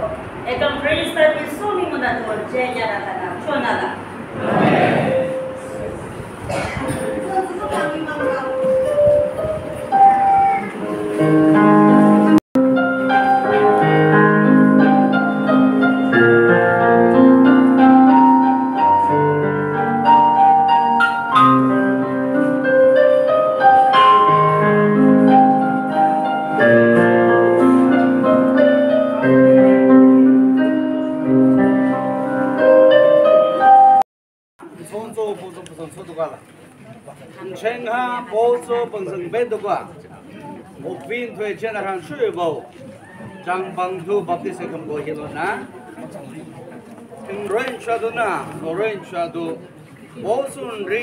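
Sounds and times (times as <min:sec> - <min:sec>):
slow piano melody: 0:04.8 - 0:34.1.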